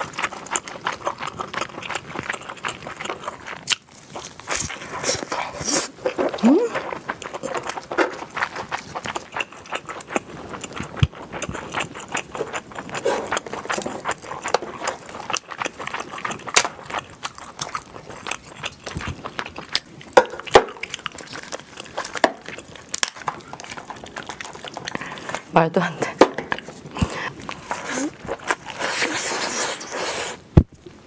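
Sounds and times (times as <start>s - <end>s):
chewing: 0.0s - 30.4s
crab shell cracking: 13.5s - 25.2s.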